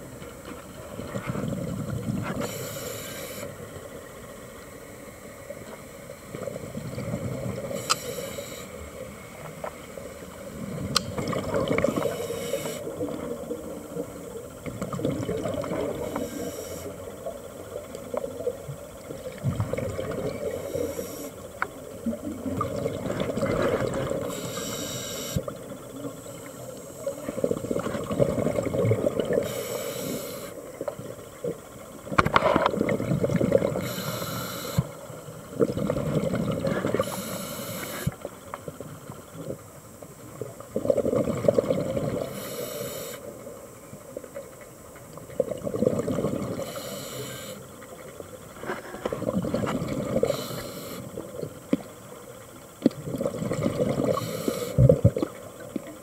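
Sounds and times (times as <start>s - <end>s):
exhaled bubbles underwater: 0.8s - 3.9s, 6.3s - 9.2s, 9.9s - 48.2s, 49.0s - 52.0s, 52.8s - 56.0s
regulator inhale hiss: 2.2s - 3.8s, 7.6s - 10.5s, 11.8s - 13.0s, 16.0s - 17.1s, 20.4s - 21.6s, 24.2s - 27.4s, 29.3s - 30.6s, 33.8s - 35.1s, 36.6s - 38.3s, 42.2s - 43.4s, 46.5s - 47.8s, 50.2s - 51.3s, 54.0s - 55.0s.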